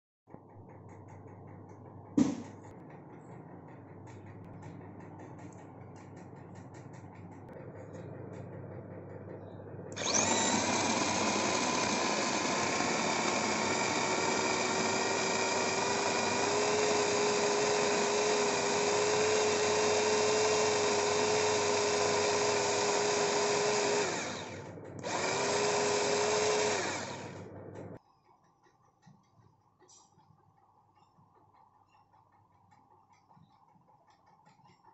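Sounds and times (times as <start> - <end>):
electric chopper motor whining: 9.2 - 28.0.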